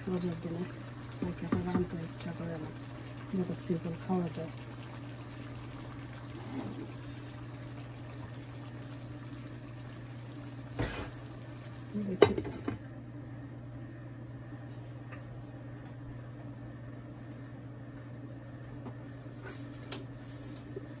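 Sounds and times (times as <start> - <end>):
curry simmering in a pan: 0.0 - 12.0.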